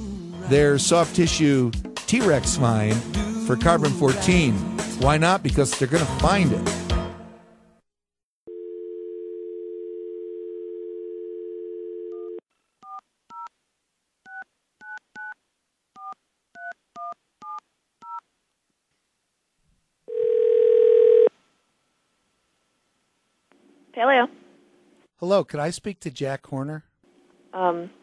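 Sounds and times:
telephone dial tone: 8.5 - 13.4, 20.1 - 21.3.

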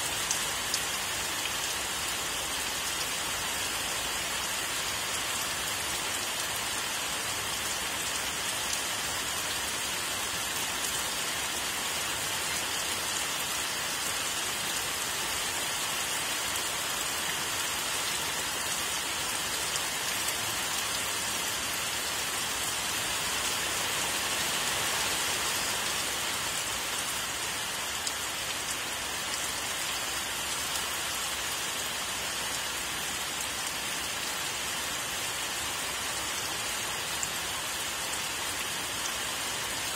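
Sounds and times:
steady rain falling: 0.0 - 39.9.

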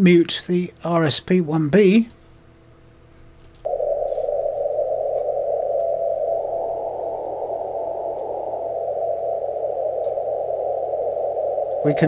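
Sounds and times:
radio hiss: 3.7 - 12.0.

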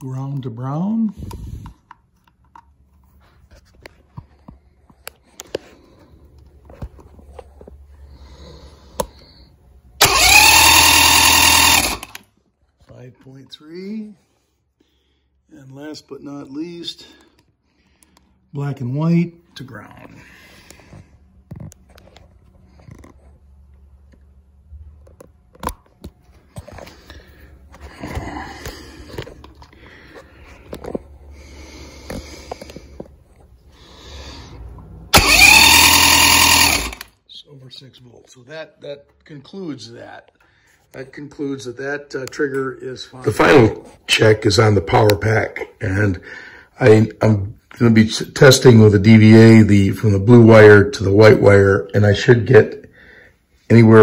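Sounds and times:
electric starter cranking engine: 10.0 - 12.3, 35.1 - 37.2.

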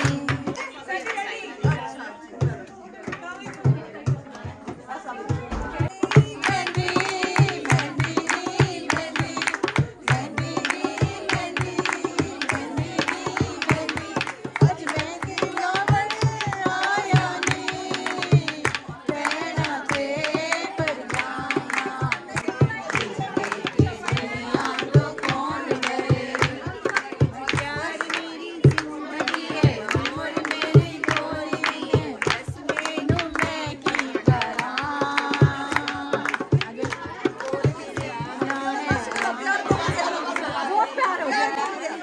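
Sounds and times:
hand drum beat: 0.0 - 0.7, 2.4 - 40.6
person singing: 0.0 - 0.9
women singing folk songs: 0.0 - 42.0.

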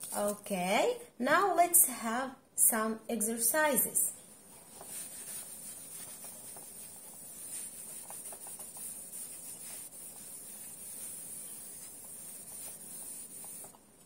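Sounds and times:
eraser rubbing on whiteboard: 4.5 - 13.8.

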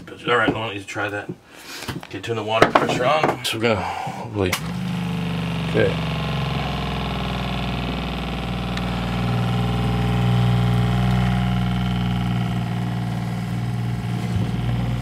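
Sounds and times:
water pump motor hum: 4.4 - 15.0.

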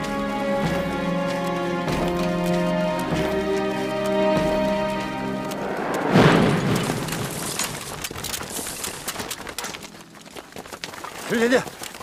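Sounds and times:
heavy explosion boom: 6.0 - 7.8.

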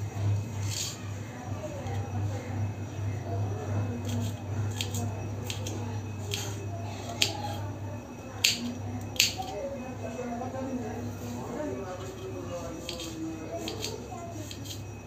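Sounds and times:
knife clicking on stone surface: 4.0 - 7.6, 8.4 - 9.6, 12.8 - 14.8.

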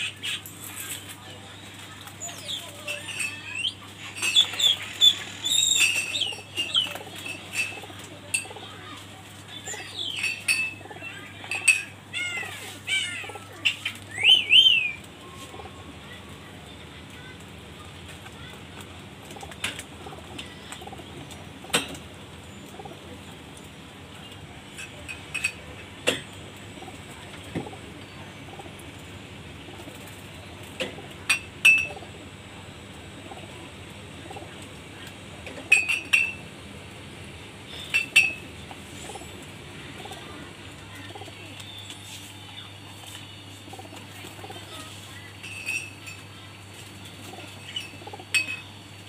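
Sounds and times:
pigeons cooing: 2.1 - 16.5, 19.2 - 36.4, 37.6 - 41.9, 43.5 - 45.0, 47.0 - 48.9.

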